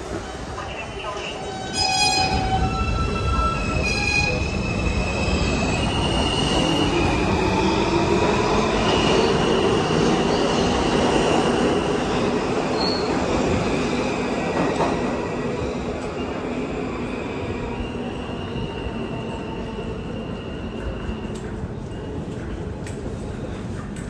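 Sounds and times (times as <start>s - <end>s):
subway train wheels rumbling: 0.0s - 24.0s.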